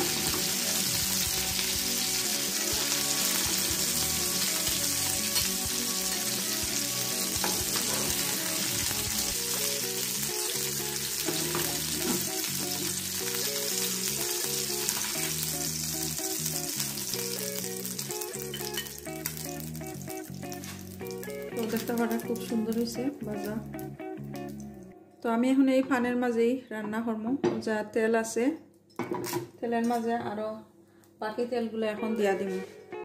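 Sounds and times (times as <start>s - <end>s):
oil sizzling in a pan: 0.0s - 24.7s.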